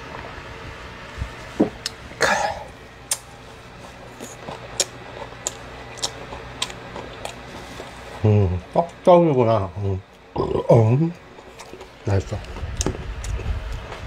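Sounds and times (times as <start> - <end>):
man coughing: 2.2 - 2.8.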